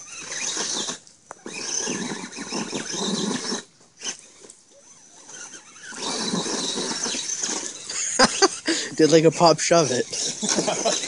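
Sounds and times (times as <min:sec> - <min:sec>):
electric motor whining: 0:00.0 - 0:11.0.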